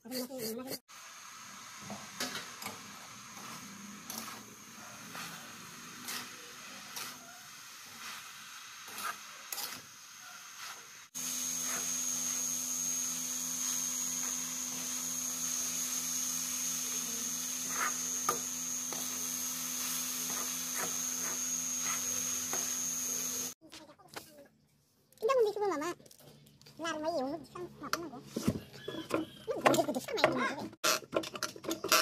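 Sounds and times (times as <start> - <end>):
spoon scraping metal pan: 3.4 - 4.5, 5.1 - 7.2, 8.9 - 9.9.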